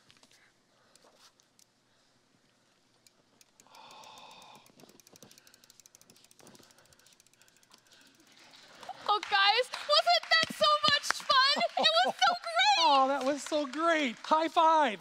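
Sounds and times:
bicycle freewheel ticking: 3.0s - 10.2s
faint breathy sound: 3.7s - 5.7s.

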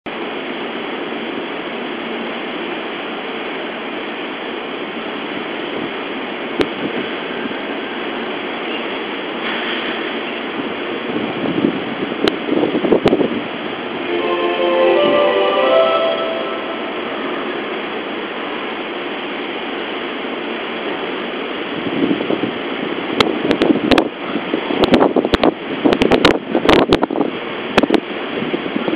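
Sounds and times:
electric train humming: 13.9s - 18.4s
station noise: 14.0s - 18.1s.

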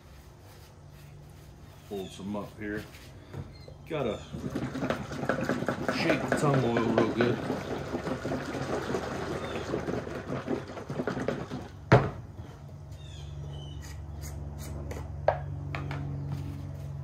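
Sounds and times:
oil sloshing in metal can: 3.9s - 11.9s.

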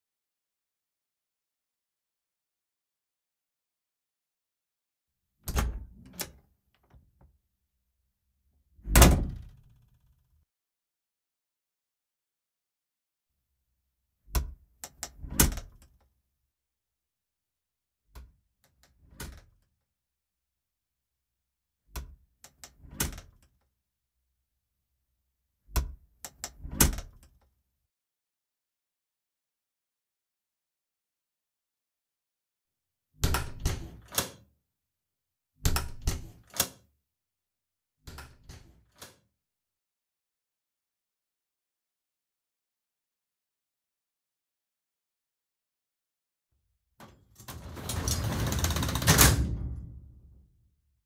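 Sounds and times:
wooden door slamming: 8.9s - 9.6s
door handle and latch click: 33.2s - 34.4s, 35.7s - 36.8s.

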